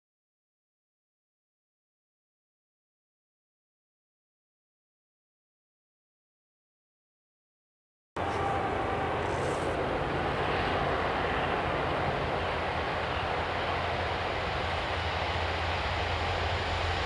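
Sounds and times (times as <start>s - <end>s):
diesel locomotive engine drone: 8.2s - 17.0s.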